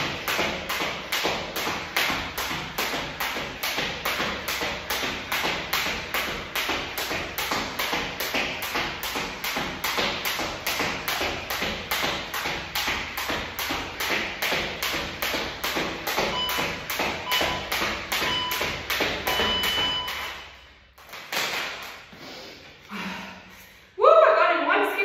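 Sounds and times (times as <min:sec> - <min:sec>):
exercise thuds: 0:00.0 - 0:22.1
short electronic beeps: 0:16.3 - 0:18.7, 0:19.3 - 0:20.7.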